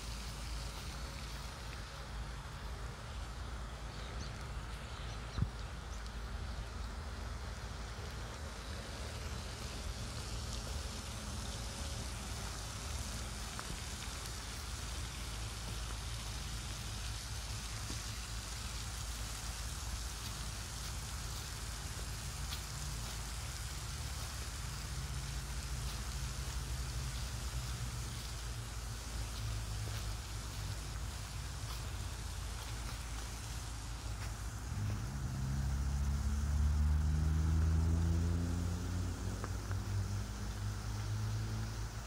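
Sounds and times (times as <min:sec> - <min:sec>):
fountain water spraying: 0:00.0 - 0:42.0
low steady rumble: 0:00.0 - 0:42.0.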